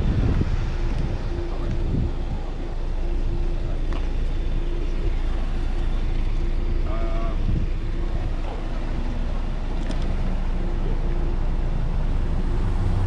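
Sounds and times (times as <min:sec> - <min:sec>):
wind on microphone: 0:00.0 - 0:02.8, 0:07.3 - 0:08.4
deep engine hum: 0:00.0 - 0:13.0
street noise: 0:00.0 - 0:13.0
vehicle engines idling: 0:00.0 - 0:13.0.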